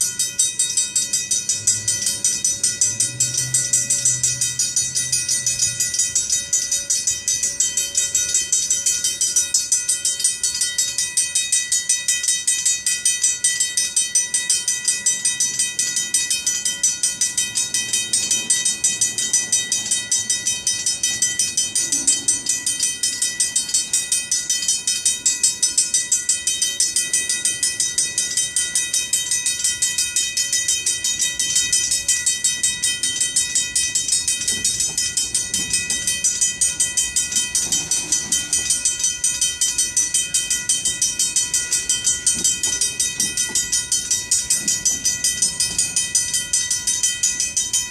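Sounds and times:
crossing bells ringing: 0:00.0 - 0:47.9
freight train rolling by: 0:00.0 - 0:47.9.

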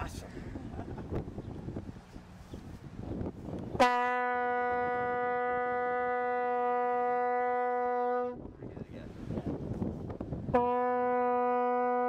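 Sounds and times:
vuvuzela horn note: 0:03.7 - 0:08.4, 0:10.5 - 0:12.0.

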